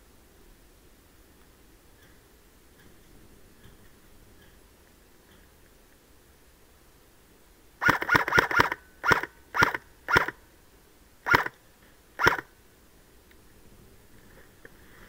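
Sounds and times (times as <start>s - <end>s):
airsoft rifle shots: 7.8s - 10.4s, 11.2s - 11.6s, 12.2s - 12.5s.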